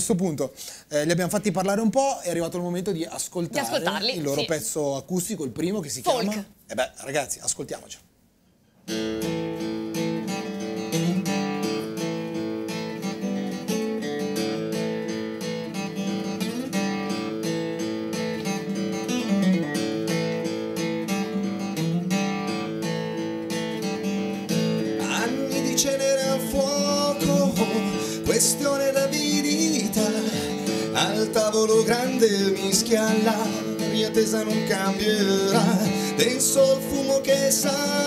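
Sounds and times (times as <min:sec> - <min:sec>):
acoustic guitar strumming chords: 0:08.8 - 0:38.0.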